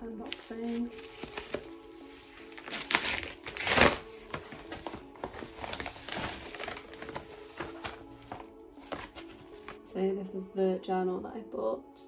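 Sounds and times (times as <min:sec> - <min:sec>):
padded envelope crinkling: 0:00.2 - 0:09.8.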